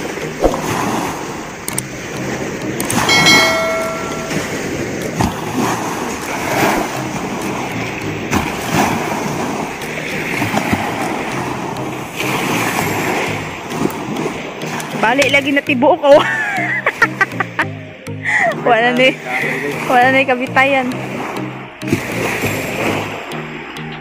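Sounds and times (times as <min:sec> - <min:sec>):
short ringing chime: 0:03.1 - 0:04.8
seawater sloshing and splashing: 0:04.8 - 0:15.1.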